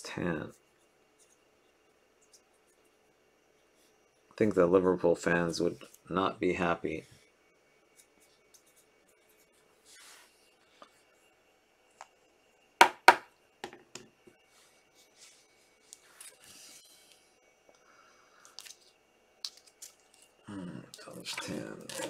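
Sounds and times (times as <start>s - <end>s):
soft rustle: 7.9s - 11.3s.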